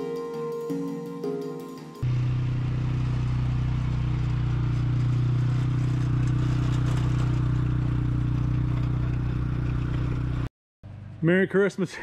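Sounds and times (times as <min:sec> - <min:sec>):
vehicle engine running: 0:02.0 - 0:11.4.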